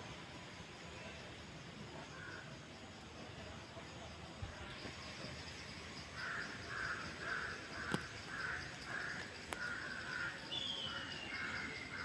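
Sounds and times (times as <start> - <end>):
crow cawing: 6.2 - 12.0.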